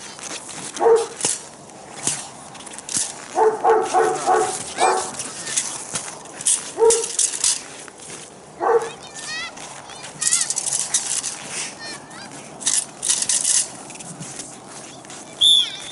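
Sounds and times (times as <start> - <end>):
dog barking: 0.8 - 1.2, 3.3 - 5.2, 6.8 - 7.2, 8.6 - 9.0.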